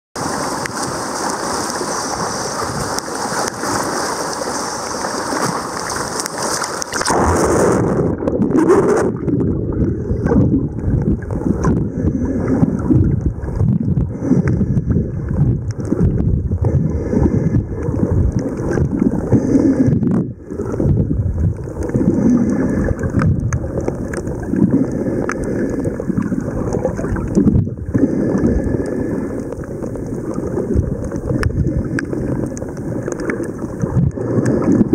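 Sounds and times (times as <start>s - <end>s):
surf: 0.2s - 34.9s
underwater sloshing and bubbling: 0.2s - 34.9s
wind on microphone: 6.9s - 24.7s, 26.2s - 28.8s.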